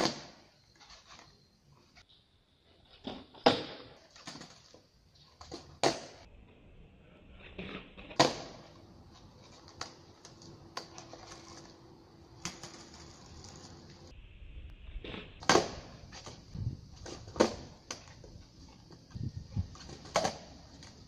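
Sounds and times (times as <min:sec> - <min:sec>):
skateboard landing thump: 0:05.6 - 0:06.2, 0:08.1 - 0:08.7, 0:15.4 - 0:16.0, 0:17.1 - 0:18.1, 0:20.0 - 0:20.5
skateboard clacks on pavement: 0:19.7 - 0:21.0.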